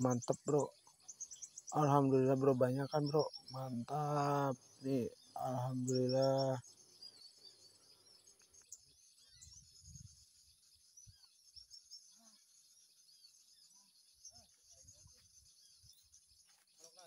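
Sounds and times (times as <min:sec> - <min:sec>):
faint bird chirps: 0:00.0 - 0:17.0
high-pitched insect drone: 0:01.7 - 0:07.6.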